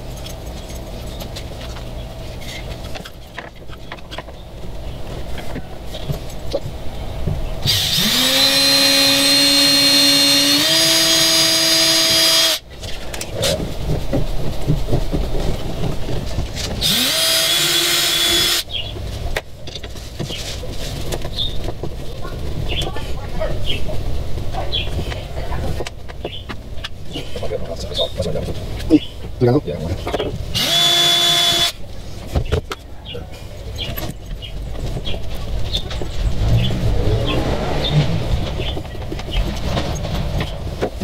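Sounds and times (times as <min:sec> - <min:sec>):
cordless drill whining: 0:07.6 - 0:12.6, 0:16.8 - 0:18.6, 0:30.6 - 0:31.8.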